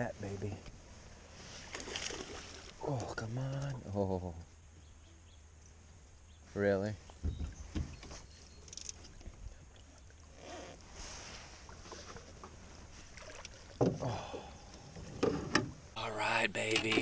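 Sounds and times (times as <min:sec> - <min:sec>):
rustling and light knocks: 0:07.0 - 0:14.0.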